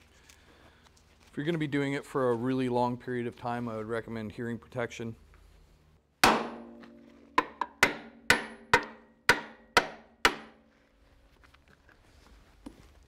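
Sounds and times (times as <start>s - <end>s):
hammer striking steel: 6.2s - 10.6s.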